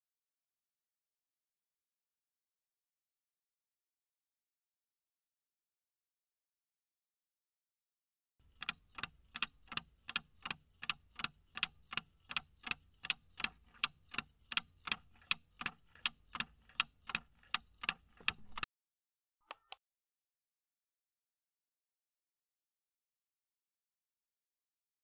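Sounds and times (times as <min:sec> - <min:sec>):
clock ticking: 0:08.4 - 0:18.7
short clicks: 0:19.5 - 0:19.8.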